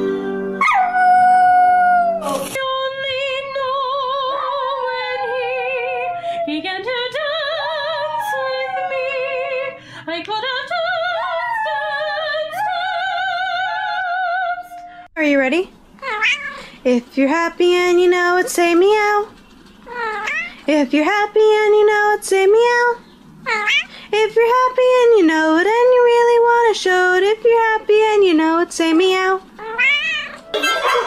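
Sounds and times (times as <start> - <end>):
small dog howling: 0.6 - 2.4, 4.8 - 6.7, 7.5 - 9.7.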